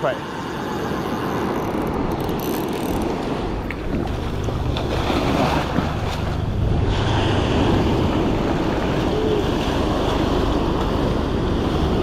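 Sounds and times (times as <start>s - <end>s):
wind rumbling on microphone: 0.3s - 12.0s
surf washing over sand: 3.2s - 12.0s.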